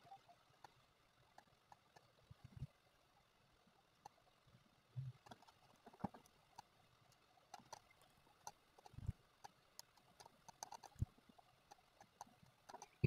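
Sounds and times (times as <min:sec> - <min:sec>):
mouse and keyboard clicks: 0:05.2 - 0:13.0.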